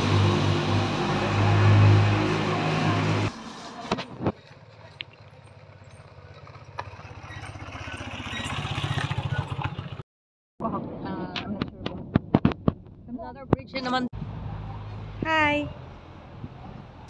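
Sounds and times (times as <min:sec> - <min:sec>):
motorcycle engine running: 0:02.4 - 0:10.0.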